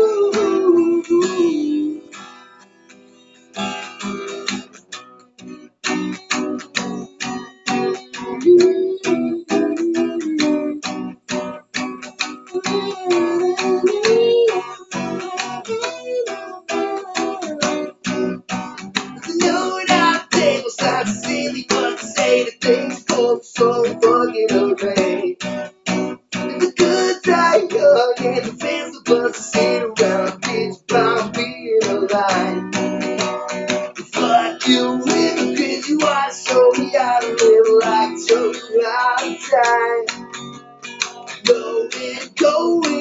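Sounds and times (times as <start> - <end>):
guitar strummed quickly: 3.5 - 43.0.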